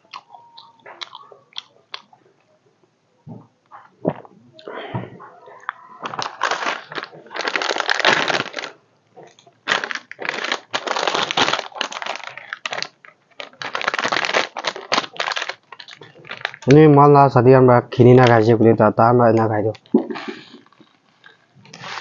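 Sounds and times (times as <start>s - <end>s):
plastic packet crinkling: 6.0s - 16.9s.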